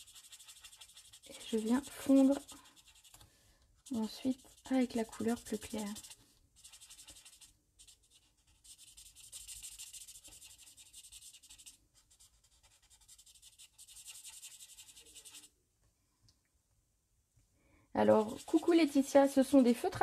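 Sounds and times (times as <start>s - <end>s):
marker tip scratching on card: 0.0s - 3.2s, 3.8s - 15.5s, 18.2s - 18.7s.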